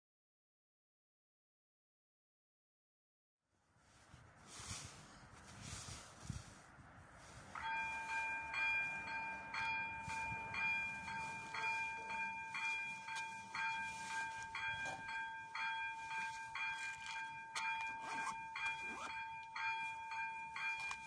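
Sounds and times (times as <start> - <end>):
level crossing electronic bell ringing: 7.6 - 21.0.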